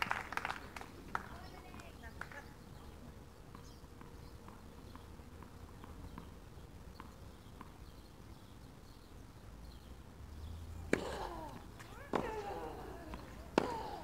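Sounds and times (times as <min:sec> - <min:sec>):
tennis ball bouncing: 0:03.5 - 0:07.8, 0:10.8 - 0:14.0
racket striking ball: 0:10.9 - 0:14.0.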